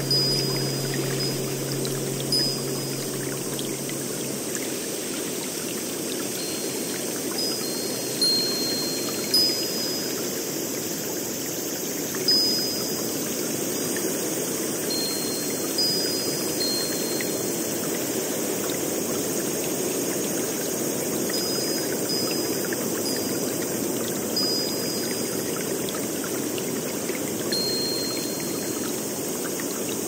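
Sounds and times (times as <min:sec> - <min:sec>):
wind chime notes: 0:00.0 - 0:05.4, 0:06.1 - 0:10.8, 0:12.2 - 0:13.3, 0:14.9 - 0:18.0, 0:21.4 - 0:25.8, 0:27.5 - 0:29.3
flowing water rushing: 0:00.0 - 0:30.0.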